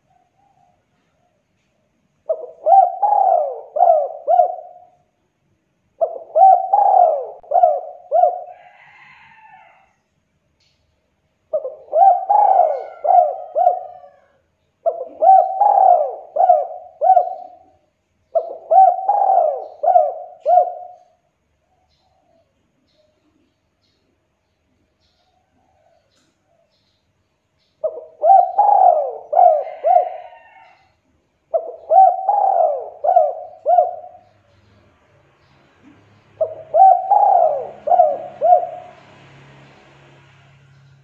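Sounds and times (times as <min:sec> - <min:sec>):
dove cooing: 0:02.2 - 0:05.1, 0:05.9 - 0:09.7, 0:11.5 - 0:21.2, 0:27.8 - 0:30.9, 0:31.5 - 0:34.7, 0:35.8 - 0:39.1
faint higher bird warble: 0:11.5 - 0:24.1.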